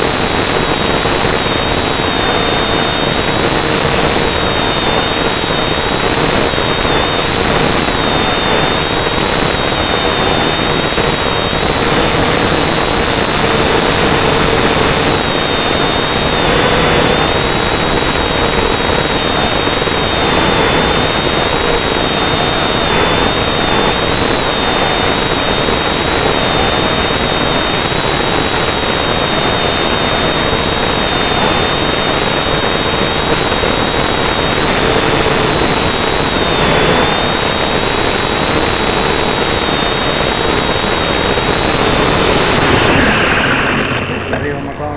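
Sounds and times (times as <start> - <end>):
drone propellers whirring: 37.9 - 44.9.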